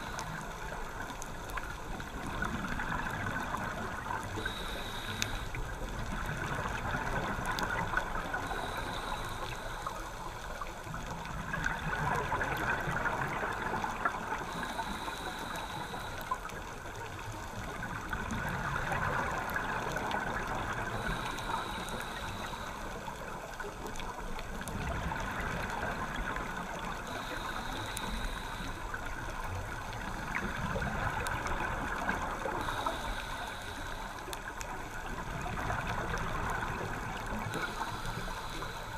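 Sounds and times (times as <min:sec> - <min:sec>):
regulator inhale hiss: 0:00.0 - 0:01.3, 0:03.0 - 0:06.6, 0:07.2 - 0:11.0, 0:13.1 - 0:17.8, 0:19.6 - 0:24.1, 0:26.1 - 0:30.6, 0:31.9 - 0:34.7, 0:36.5 - 0:38.9.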